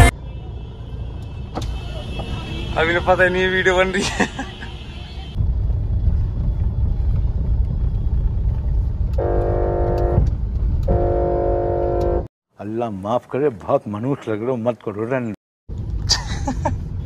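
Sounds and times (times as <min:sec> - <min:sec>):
car driving rumble: 0:01.1 - 0:12.3
car horn blasts: 0:09.2 - 0:12.3.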